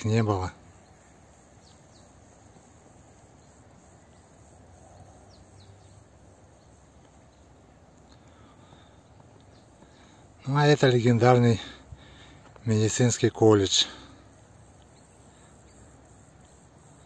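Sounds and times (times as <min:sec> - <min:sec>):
insects chirring: 0:00.0 - 0:17.0.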